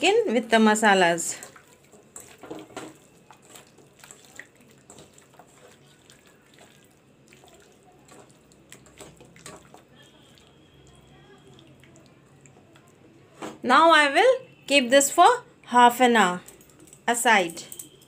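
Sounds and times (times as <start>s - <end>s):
hands squishing wet marinade: 1.0s - 13.3s, 16.4s - 17.9s.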